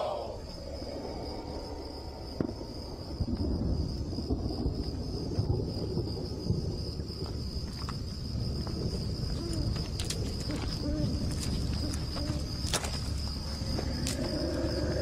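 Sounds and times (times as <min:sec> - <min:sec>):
soft low hoots: 0:00.0 - 0:02.5, 0:10.5 - 0:12.6
high insect trill: 0:00.0 - 0:15.0.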